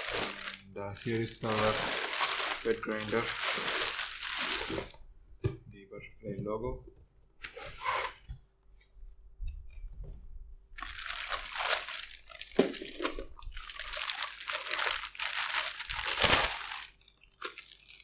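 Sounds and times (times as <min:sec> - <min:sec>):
plastic packaging crinkling: 0:00.0 - 0:05.0, 0:10.8 - 0:18.0.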